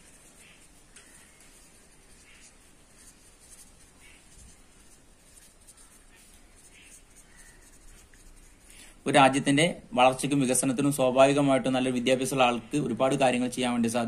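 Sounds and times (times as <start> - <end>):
marker pen scratching on paper: 0.0 - 8.7.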